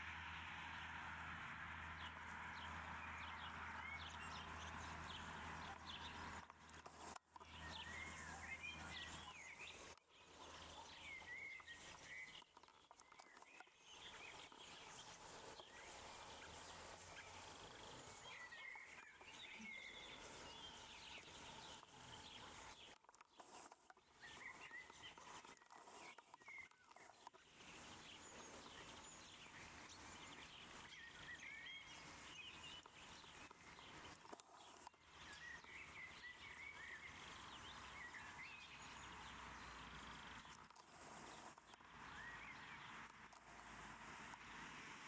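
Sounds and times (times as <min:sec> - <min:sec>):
birds chirping: 0:02.0 - 0:44.7
steady hiss: 0:13.9 - 0:22.9.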